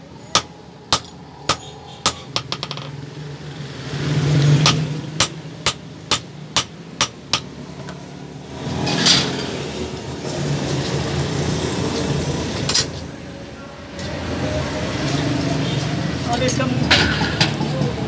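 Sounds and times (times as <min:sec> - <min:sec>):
rushing noise: 0:00.0 - 0:05.1
hammer striking iron on anvil: 0:00.3 - 0:02.9, 0:04.6 - 0:07.6.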